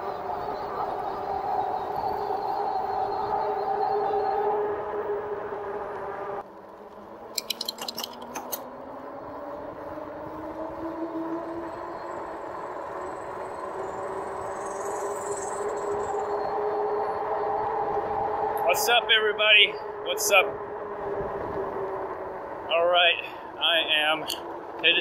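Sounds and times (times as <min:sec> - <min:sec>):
electric bike hub motor whining: 0:00.0 - 0:18.6, 0:19.8 - 0:22.7
quick run of clicks: 0:07.4 - 0:08.6
tyre and wind noise: 0:20.4 - 0:22.7.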